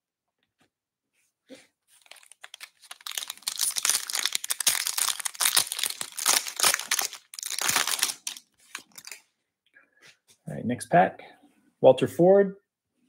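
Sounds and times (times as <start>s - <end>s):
plastic wrapper crinkling and tearing: 2.0s - 9.2s.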